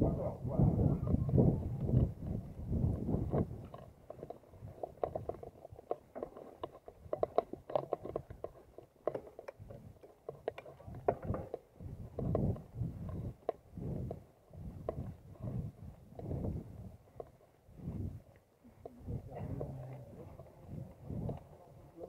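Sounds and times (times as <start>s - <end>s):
wind on microphone: 0.0s - 5.5s, 10.7s - 22.0s
bike rattling over bumpy grass: 1.3s - 17.3s.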